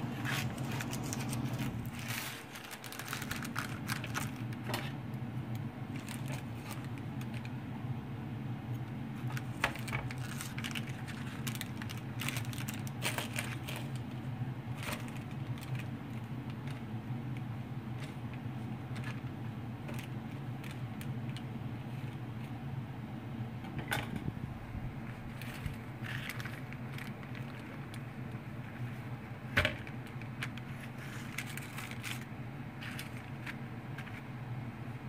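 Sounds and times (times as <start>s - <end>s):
utensils scraping baking paper: 0.0s - 5.0s, 5.9s - 7.5s, 9.2s - 16.9s, 25.0s - 29.1s, 30.0s - 34.3s
steady low hum: 0.0s - 35.0s.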